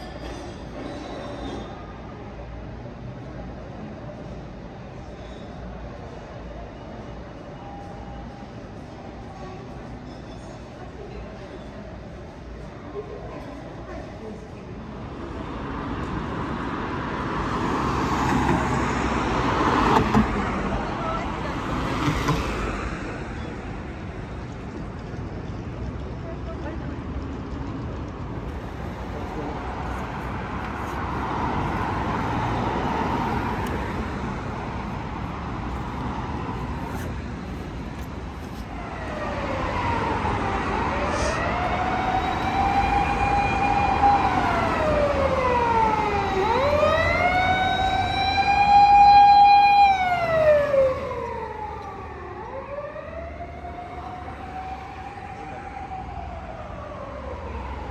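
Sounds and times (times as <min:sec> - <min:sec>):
street traffic hum: 0:00.0 - 0:57.9
emergency vehicle siren wailing: 0:38.6 - 0:57.9.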